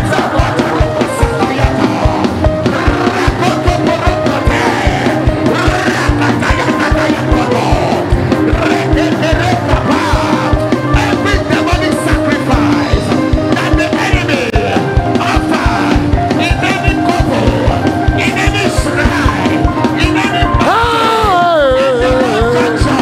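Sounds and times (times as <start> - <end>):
crowd praying and singing: 0.0 - 13.0
church praise music: 0.0 - 23.0
fast steady drum beat: 0.0 - 23.0.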